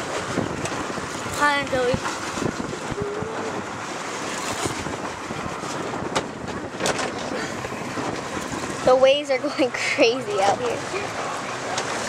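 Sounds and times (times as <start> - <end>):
rough sea rushing: 0.0 - 12.0
wind buffeting microphone: 0.0 - 12.0.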